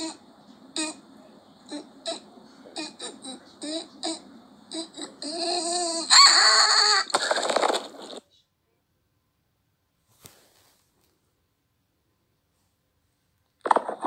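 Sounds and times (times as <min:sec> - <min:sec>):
wavering whine and squeal: 0:00.0 - 0:08.0
high-pitched giggle-like squeaks: 0:02.8 - 0:07.5.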